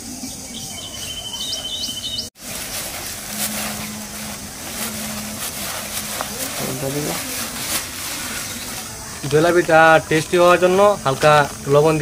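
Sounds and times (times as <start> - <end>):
bird chirping: 0.0 - 9.3
low hum: 2.4 - 9.2
plastic sack rustling: 2.4 - 9.9.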